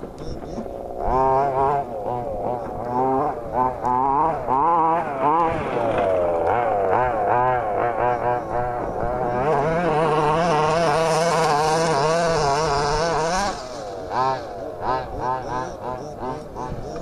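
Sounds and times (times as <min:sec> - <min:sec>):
small two-stroke engine revving: 0:00.0 - 0:17.0.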